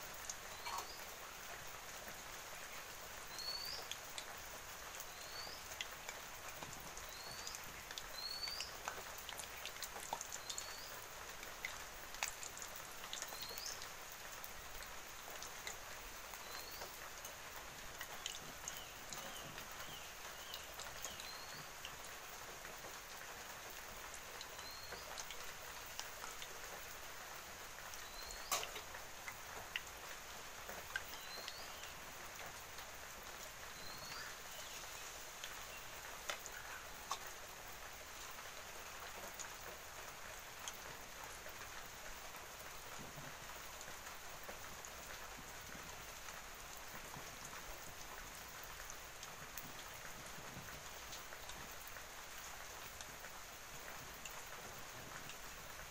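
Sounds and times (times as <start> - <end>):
small bird chirping: 0.5 - 1.1.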